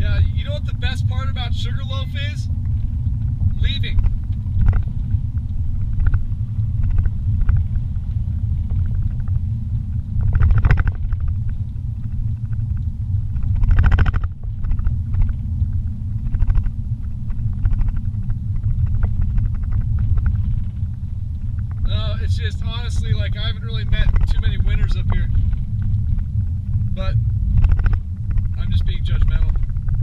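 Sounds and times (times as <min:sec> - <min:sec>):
car engine and road rumble: 0:00.0 - 0:30.0.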